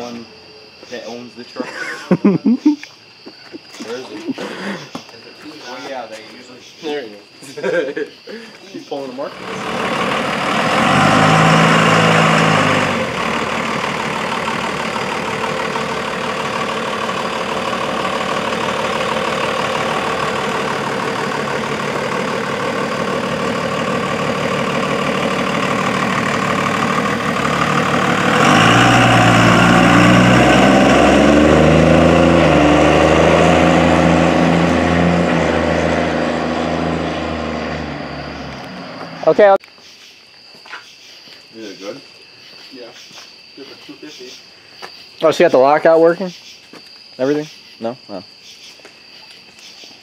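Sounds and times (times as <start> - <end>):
diesel pickup engine running: 9.2 - 39.6.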